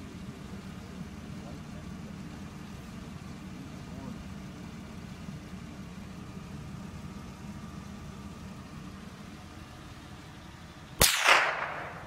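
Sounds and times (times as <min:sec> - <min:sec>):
minivan engine idling: 0:00.0 - 0:12.0
gunshot: 0:11.0 - 0:12.0.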